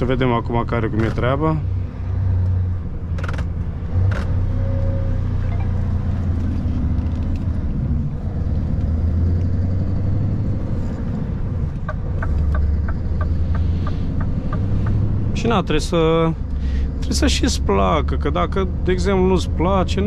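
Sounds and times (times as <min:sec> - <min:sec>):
diesel engine drone in truck cab: 0:00.0 - 0:20.0
regular ticking: 0:11.7 - 0:15.7.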